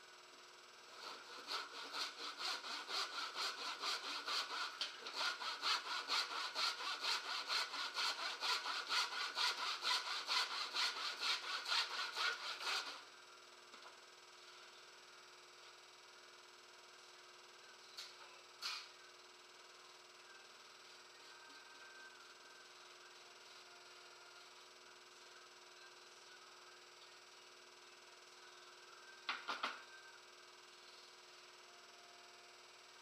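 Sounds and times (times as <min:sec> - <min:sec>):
handsaw cutting wood: 0:01.0 - 0:13.0.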